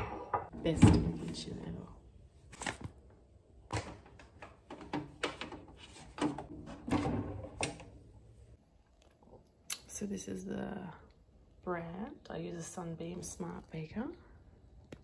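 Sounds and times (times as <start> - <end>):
paper rustling: 2.5 - 3.0.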